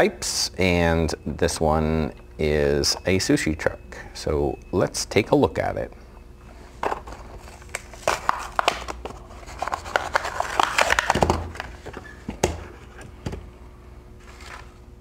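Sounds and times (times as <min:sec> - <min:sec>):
plastic packaging crinkling: 0:07.0 - 0:12.1.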